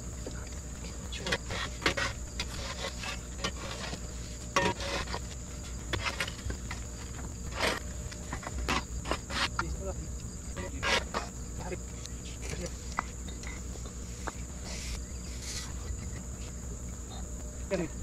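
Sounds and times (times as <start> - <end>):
high-pitched insect drone: 0.0 - 18.0
knocks and scrapes: 1.2 - 9.7, 10.6 - 11.4, 12.2 - 16.6.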